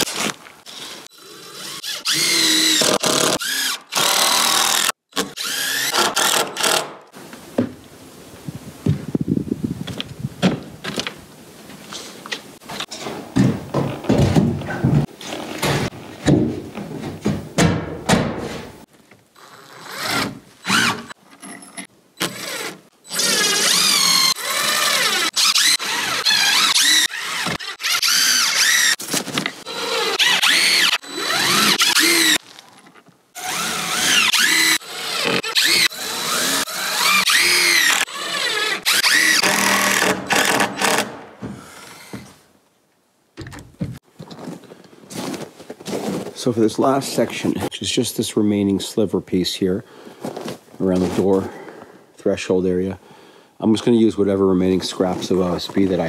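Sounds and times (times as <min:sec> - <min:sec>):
power drill running: 0:00.7 - 0:06.8, 0:29.6 - 0:32.4, 0:33.4 - 0:41.1.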